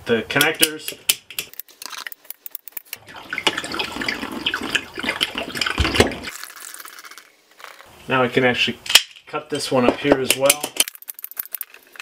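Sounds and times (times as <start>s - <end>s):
water running and splashing: 3.0s - 6.4s.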